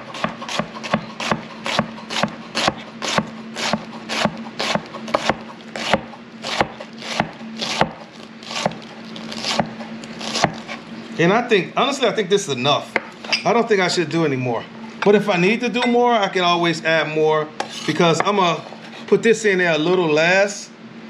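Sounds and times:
knife chopping cabbage on board: 0:00.0 - 0:10.8.

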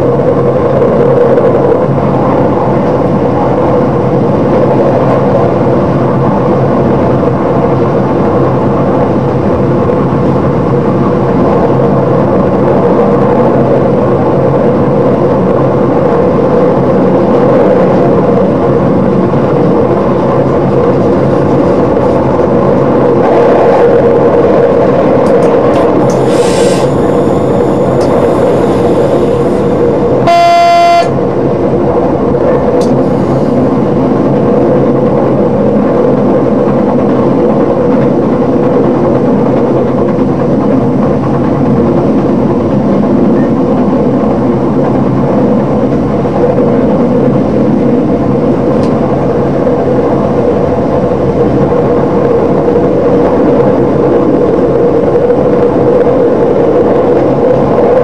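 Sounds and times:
train wheels on rails: 0:00.0 - 0:58.0
train horn blast: 0:30.2 - 0:31.2.

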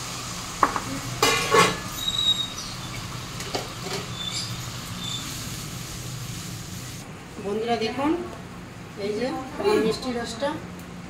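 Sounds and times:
crockery clattering: 0:00.7 - 0:02.0
spatula scraping metal pot: 0:01.2 - 0:02.5.

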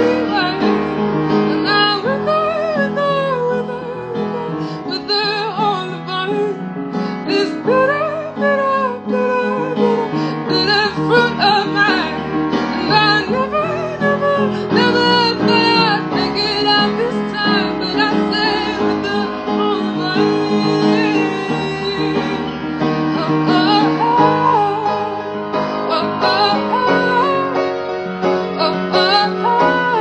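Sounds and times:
piano: 0:00.0 - 0:30.0
woman singing: 0:00.0 - 0:30.0.

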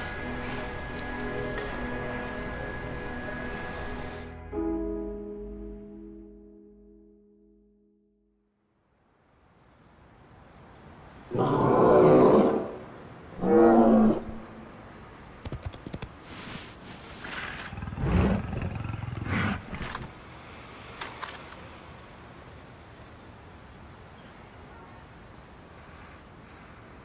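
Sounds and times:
cartoon dinosaur roars: 0:11.3 - 0:14.5
clicks and rumbling bursts: 0:15.4 - 0:16.3, 0:17.6 - 0:20.2.

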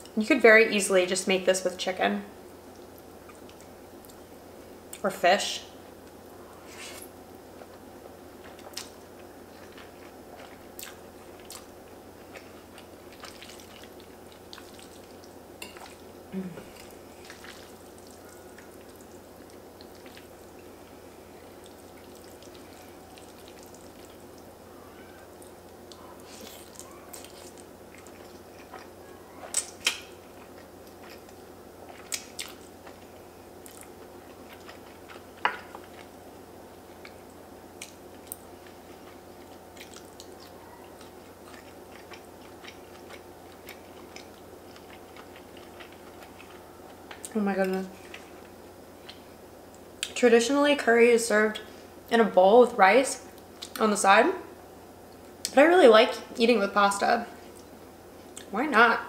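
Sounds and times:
faint hum: 0:00.0 - 0:59.0
chewing and slurping noodles: 0:12.3 - 0:16.1, 0:16.8 - 0:20.5, 0:21.6 - 0:24.5.

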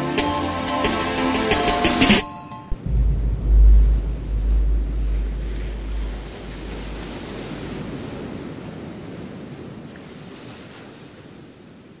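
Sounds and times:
deep low hum: 0:02.7 - 0:08.2
ocean surf rushing: 0:02.7 - 0:09.4.

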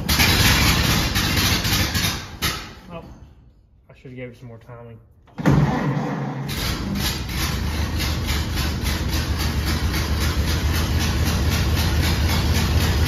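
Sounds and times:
car engine starting and running: 0:00.0 - 0:02.4, 0:05.3 - 0:13.0.

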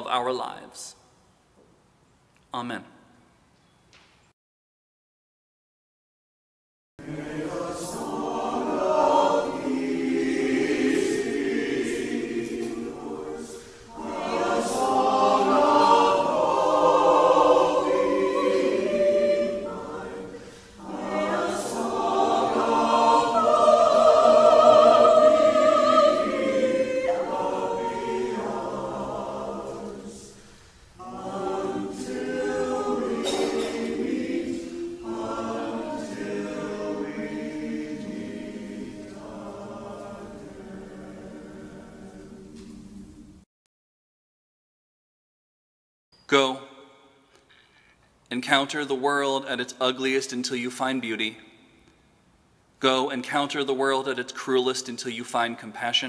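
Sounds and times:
choir singing: 0:07.0 - 0:43.4.

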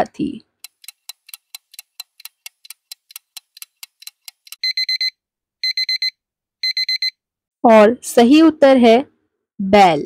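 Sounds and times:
clock ticking fast: 0:00.6 - 0:04.7
digital alarm clock beeping: 0:00.6 - 0:07.2.

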